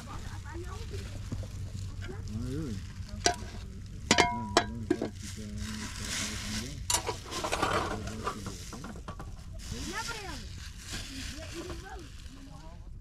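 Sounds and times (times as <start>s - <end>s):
metal utensils clinking on pots: 3.1s - 5.2s, 6.8s - 9.3s.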